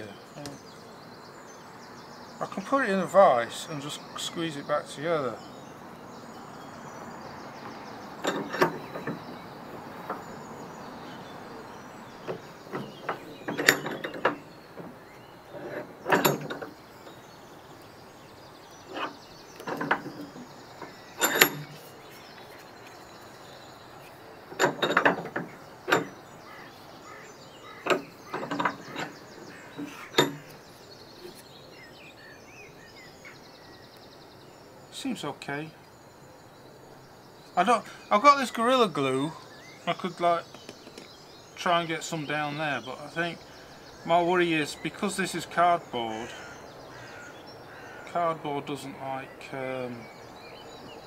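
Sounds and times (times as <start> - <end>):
vise clicks and knocks: 8.2 - 11.2, 12.2 - 17.2, 18.8 - 23.0, 24.0 - 30.6.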